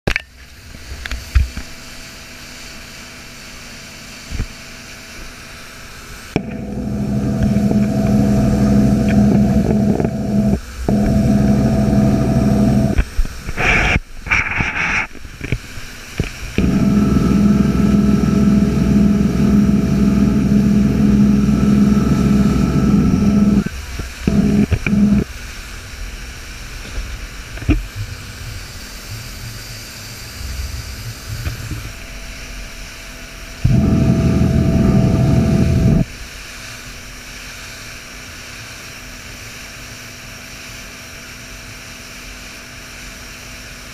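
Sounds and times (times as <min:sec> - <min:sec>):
motorboat engine droning: 0:06.2 - 0:13.8, 0:16.3 - 0:26.4, 0:33.6 - 0:36.2.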